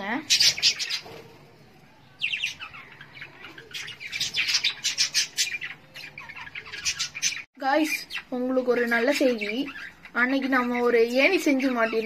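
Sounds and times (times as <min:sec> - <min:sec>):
budgerigars chirping: 0:00.2 - 0:01.2, 0:02.2 - 0:12.0.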